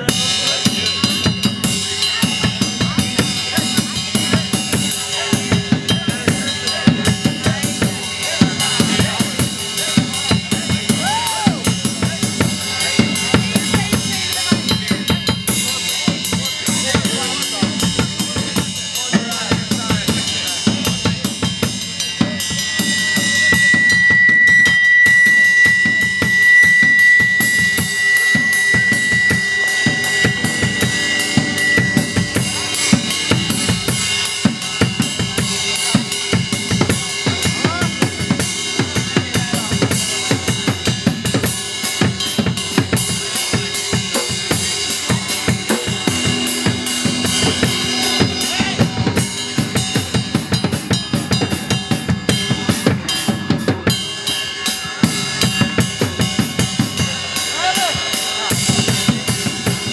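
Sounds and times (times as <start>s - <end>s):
drum kit beating fast: 0.0s - 59.9s
live rock band playing: 0.0s - 59.9s
high steady tone: 11.9s - 58.1s
electric guitar: 28.4s - 35.6s, 44.2s - 50.6s.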